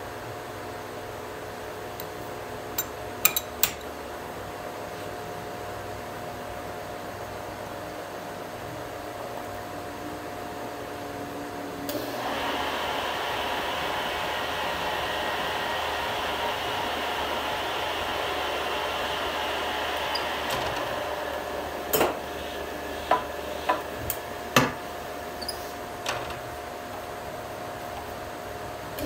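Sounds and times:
metal lathe running: 12.0s - 24.4s.

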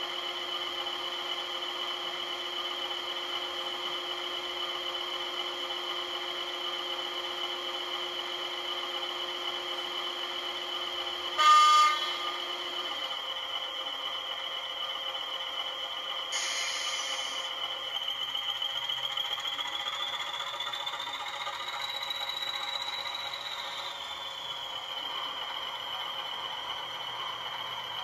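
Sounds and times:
model locomotive engine hum: 0.0s - 28.0s
loud horn blast: 11.4s - 12.3s.

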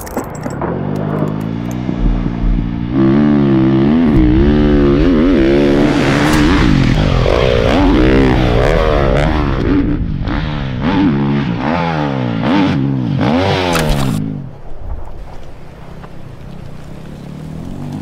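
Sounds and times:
dirt bike engine revving: 1.5s - 14.4s.

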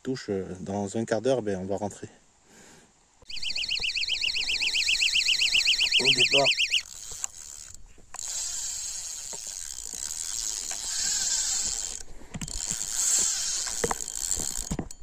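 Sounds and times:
fishing line hissing off reel: 6.8s - 14.7s.

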